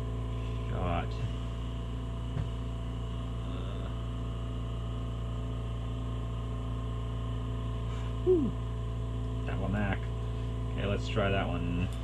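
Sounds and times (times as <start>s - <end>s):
short falling vocal sound: 8.2s - 8.6s.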